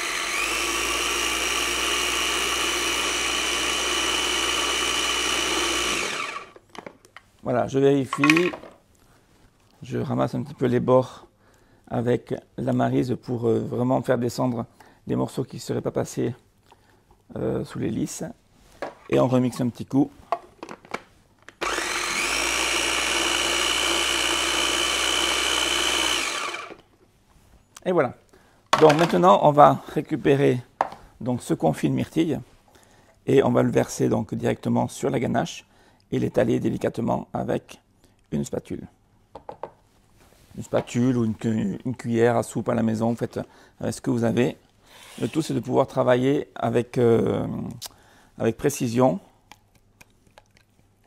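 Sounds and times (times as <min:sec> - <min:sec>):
food processor motor whine: 0:00.0 - 0:06.6, 0:21.6 - 0:26.8.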